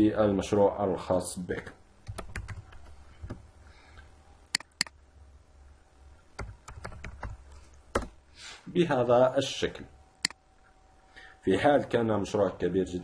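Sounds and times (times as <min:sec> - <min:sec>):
faint low hum: 0:00.0 - 0:13.0
computer keyboard keystrokes: 0:02.1 - 0:03.4, 0:06.4 - 0:08.2.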